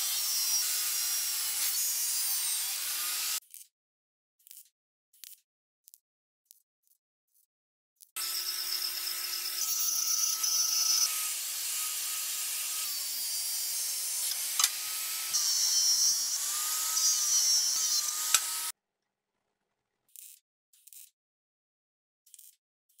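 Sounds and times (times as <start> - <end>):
electric power tool motor: 0.0 - 3.4, 8.2 - 18.7.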